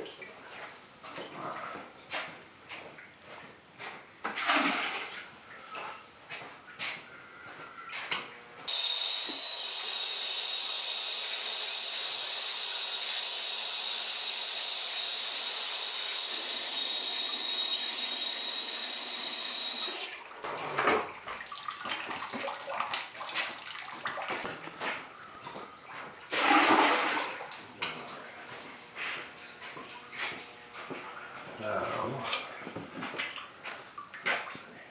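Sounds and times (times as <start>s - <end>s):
hose water running: 8.7s - 34.6s.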